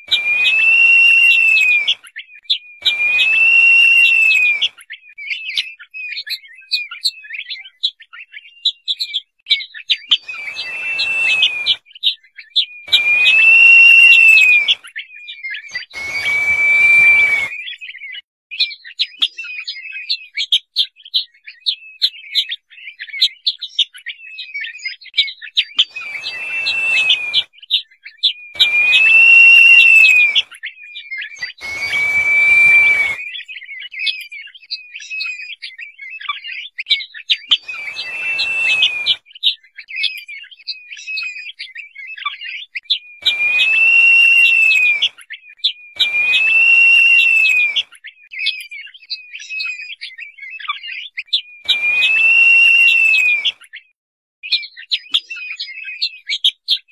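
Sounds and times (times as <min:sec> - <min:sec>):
bird whistled notes: 0:00.0 - 0:09.1, 0:10.0 - 0:18.2, 0:25.8 - 0:36.3, 0:37.4 - 0:53.8
rapid high bird chirping: 0:00.0 - 0:09.2, 0:09.8 - 0:18.1, 0:25.7 - 0:35.6, 0:37.4 - 0:53.8.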